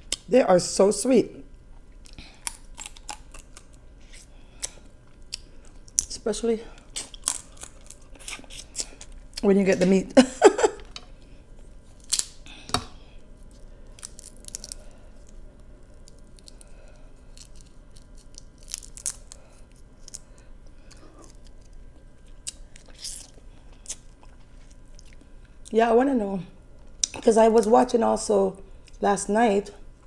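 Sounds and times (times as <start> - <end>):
crab shells cracking: 2.1 - 3.8, 6.8 - 9.3, 12.0 - 13.0, 13.9 - 24.3.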